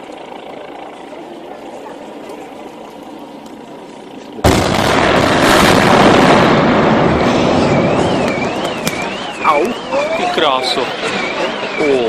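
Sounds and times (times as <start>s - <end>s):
building collapsing rumble: 4.4s - 9.4s
explosive bang: 4.4s - 9.4s.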